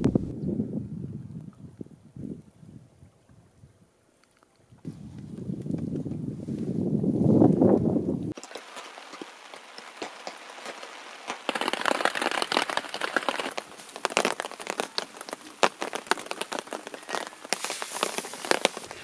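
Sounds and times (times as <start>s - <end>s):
drops dripping off tarp: 8.3s - 19.0s
rain falling on a tarp: 8.3s - 19.0s.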